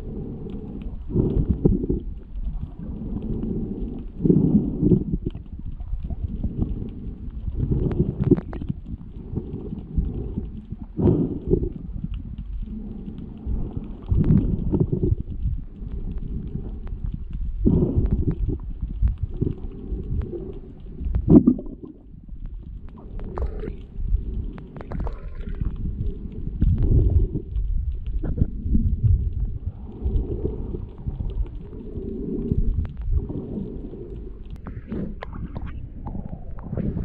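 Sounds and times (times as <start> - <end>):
faint clicks: 0.0 - 36.9
underwater rumbling and gurgling: 0.0 - 37.0.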